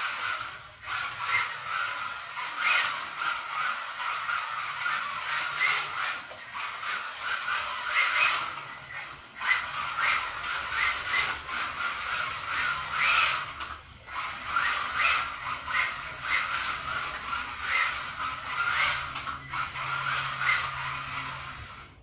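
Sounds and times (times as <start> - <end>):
small tyres squealing on tiles: 0.0 - 22.0.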